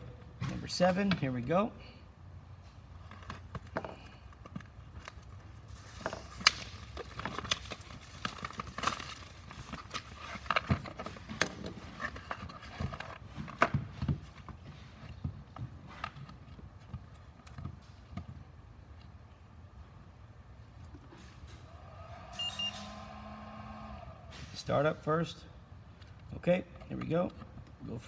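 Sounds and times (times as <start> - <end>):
cardboard and plastic rustling: 3.0 - 18.0.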